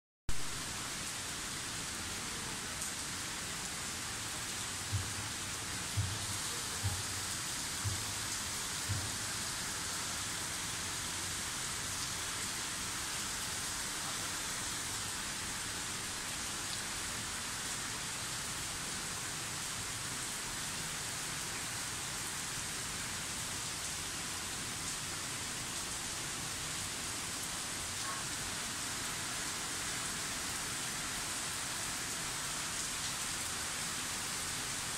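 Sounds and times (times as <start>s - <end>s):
heavy rain falling: 0.3s - 34.9s.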